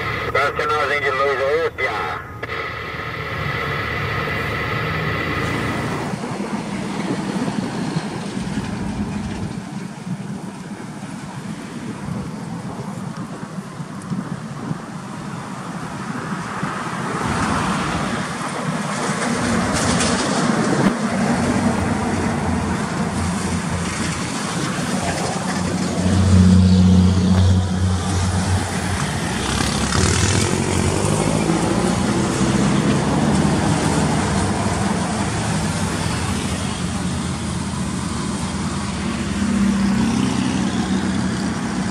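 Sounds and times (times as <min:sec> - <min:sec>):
truck diesel engine accelerating: 0:00.0 - 0:09.6, 0:19.3 - 0:41.9
tyre and road noise: 0:00.0 - 0:41.9.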